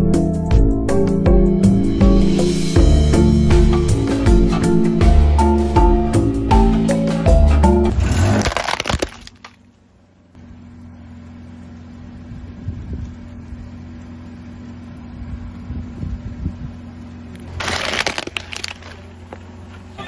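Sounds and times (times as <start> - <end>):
car engine idling: 0.0 - 8.4, 9.4 - 20.0
tyre crunching plastic toy: 7.9 - 9.7, 17.5 - 19.5.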